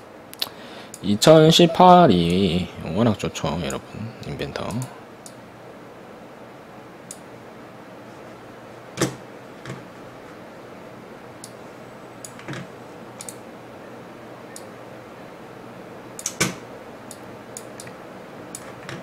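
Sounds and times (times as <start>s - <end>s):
steady low hum: 0.0s - 19.0s
computer mouse clicks: 16.2s - 16.5s.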